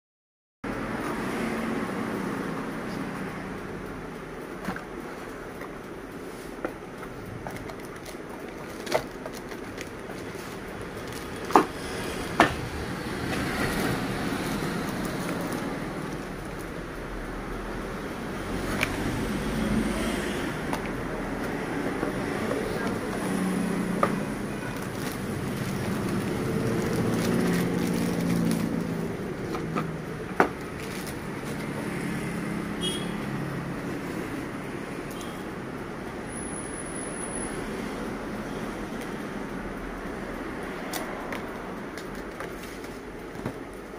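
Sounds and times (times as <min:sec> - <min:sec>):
plastic bag rustling: 0:24.7 - 0:29.7, 0:30.6 - 0:31.7
plastic packaging crinkling: 0:24.7 - 0:29.7, 0:30.6 - 0:31.6.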